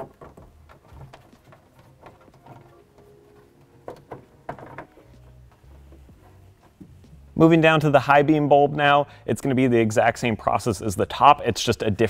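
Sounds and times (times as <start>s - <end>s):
wiring rustling: 0.0s - 7.4s.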